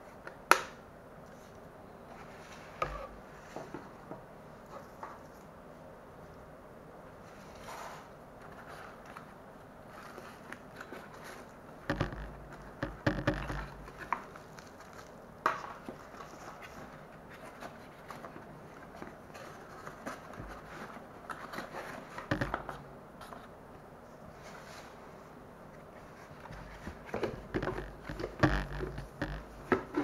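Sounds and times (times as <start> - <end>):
cardboard and paper rustling: 7.3 - 23.5, 26.0 - 30.0
sharp knocks: 11.9 - 13.9.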